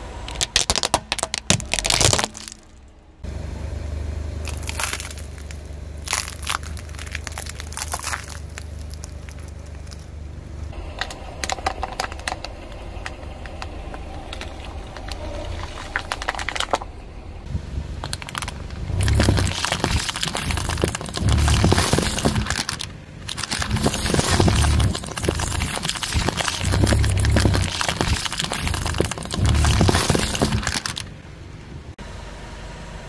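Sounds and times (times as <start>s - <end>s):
tyre crushing aluminium cans: 0.3s - 2.7s, 10.8s - 16.9s, 18.0s - 31.1s
plastic bottle crackling under tyre: 0.3s - 2.8s, 4.4s - 17.0s, 17.8s - 31.2s.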